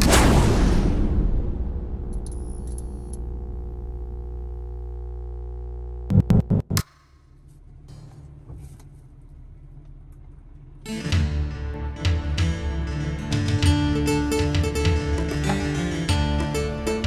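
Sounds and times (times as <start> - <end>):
quiet low hum: 7.0 - 10.9.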